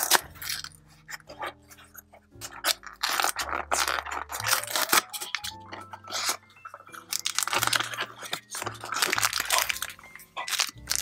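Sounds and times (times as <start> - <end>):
soft background music: 0.0 - 11.0
cardboard box crackling and scraping: 7.2 - 11.0.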